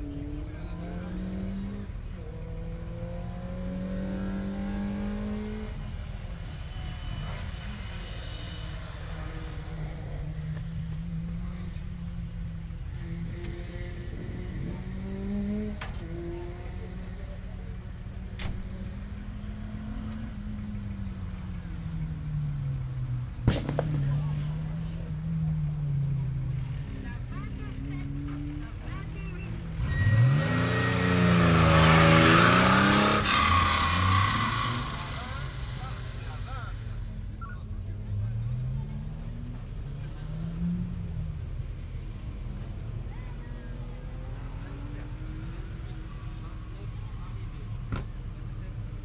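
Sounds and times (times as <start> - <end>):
low rumble of other engines: 0.0 - 49.0
rally car engine revving: 0.0 - 49.0.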